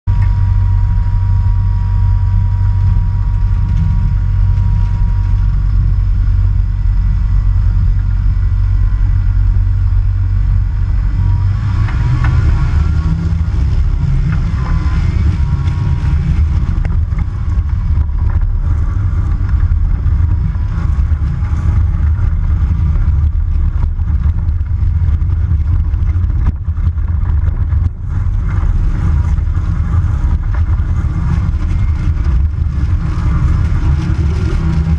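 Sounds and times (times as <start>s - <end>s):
light aircraft engine droning: 0.1s - 34.9s.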